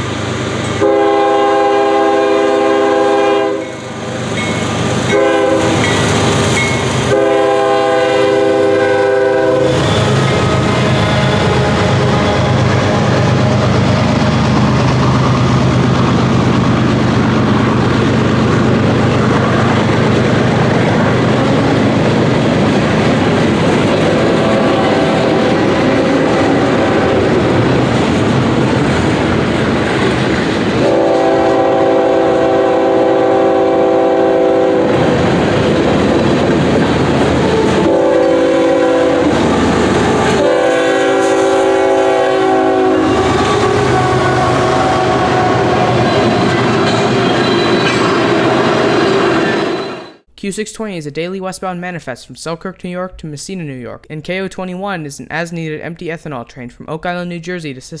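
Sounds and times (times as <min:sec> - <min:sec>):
freight train rolling past: 0:00.0 - 0:50.3
train horn blasts: 0:00.8 - 0:03.9, 0:05.1 - 0:06.0, 0:07.1 - 0:13.8, 0:24.0 - 0:27.5, 0:30.8 - 0:35.1, 0:37.5 - 0:48.6.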